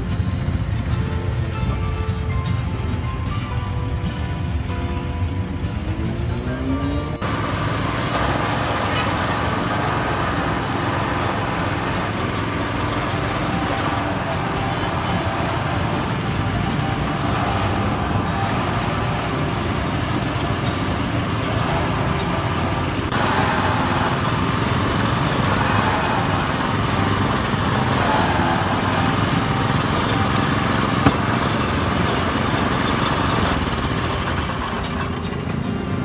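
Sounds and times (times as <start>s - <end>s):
small petrol engine running: 0.0s - 36.0s
rollers crushing cane stalks: 7.2s - 36.0s.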